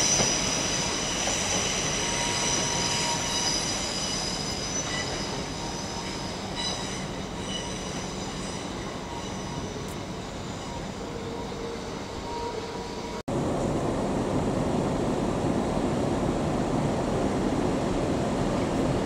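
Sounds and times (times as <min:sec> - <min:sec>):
train wheels squealing: 0:00.0 - 0:13.2
train rumble: 0:00.0 - 0:19.0.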